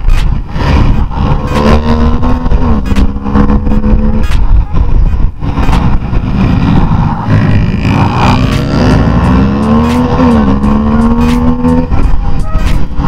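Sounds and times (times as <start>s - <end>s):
motorcycle engine revving: 0.0s - 13.0s
wind noise on microphone: 0.0s - 13.0s.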